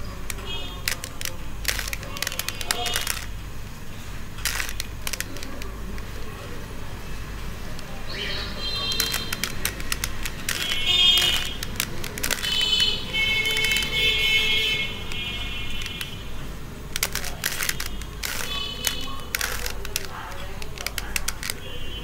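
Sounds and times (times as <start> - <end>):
puzzle cube layers clicking: 0.0 - 3.4, 4.4 - 6.4, 8.8 - 14.2, 15.0 - 16.2, 16.9 - 21.6.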